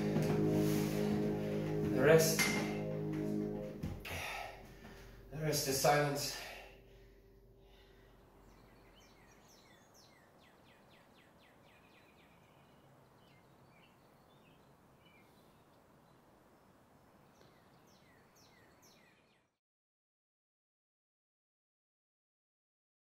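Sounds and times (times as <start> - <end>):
steady low hiss: 0.0 - 18.8
small birds chirping: 7.7 - 19.6.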